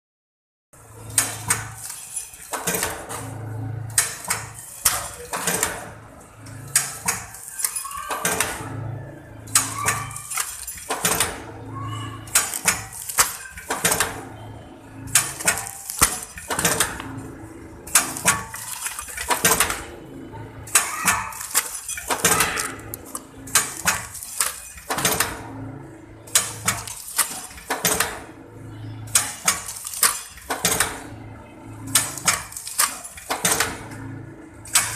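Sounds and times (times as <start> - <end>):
steady machine noise: 0.8 - 34.9
metallic machine clacks: 12.3 - 14.2, 20.7 - 25.5, 26.3 - 28.2, 29.1 - 31.0.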